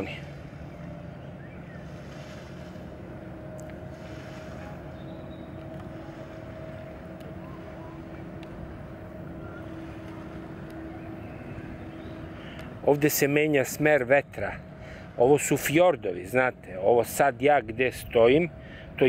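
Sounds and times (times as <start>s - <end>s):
distant motorboat engines droning: 0.0s - 19.0s
low wind rumble: 0.0s - 19.0s.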